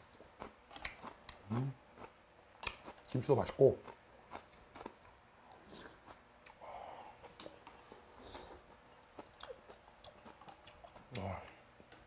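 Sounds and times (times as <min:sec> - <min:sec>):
soft chewing: 0:00.0 - 0:12.0
soft breathy noise: 0:06.6 - 0:08.6.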